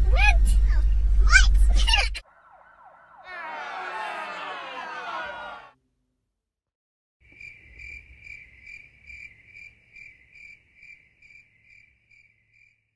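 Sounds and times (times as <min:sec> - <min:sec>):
cricket chirping: 0:07.2 - 0:12.9.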